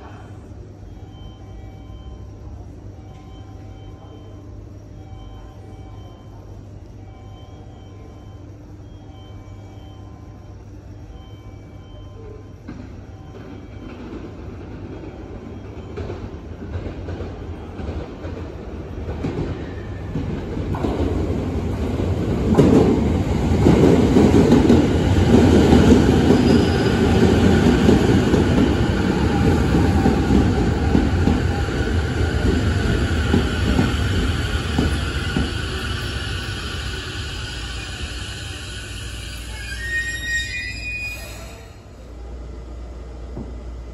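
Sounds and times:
train wheel and rail rumble: 0:00.0 - 0:43.9
train electrical whining: 0:20.8 - 0:42.3.

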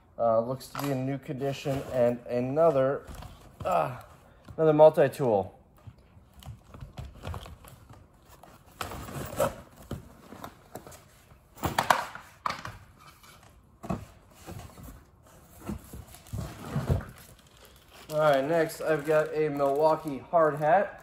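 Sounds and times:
tools and packaging clattering: 0:05.8 - 0:21.0.

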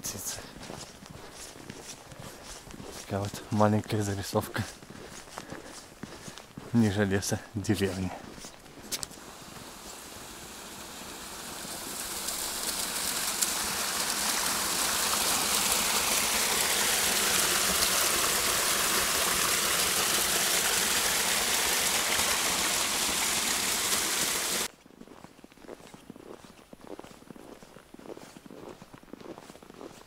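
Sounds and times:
running water rushing: 0:09.0 - 0:24.7.

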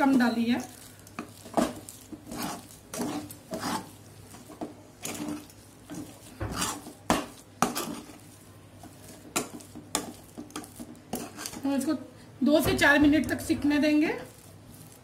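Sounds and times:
metal spoon scraping metal pan: 0:00.2 - 0:11.8.

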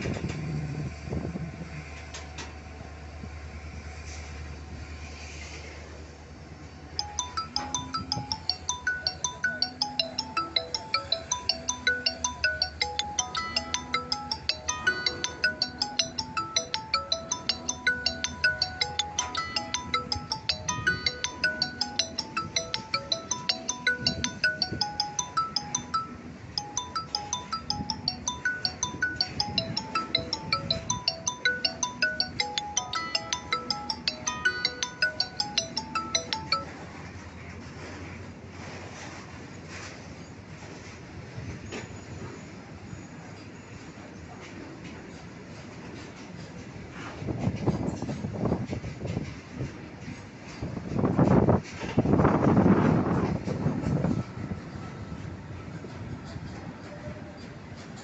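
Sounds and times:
plinking background music: 0:07.0 - 0:36.8
ringtone-like melody: 0:07.0 - 0:37.0.

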